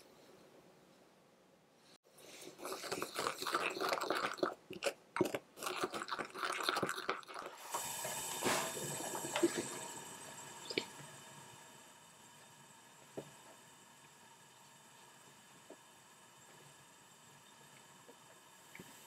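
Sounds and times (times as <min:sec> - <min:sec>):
steady hiss: 0:07.5 - 0:19.0.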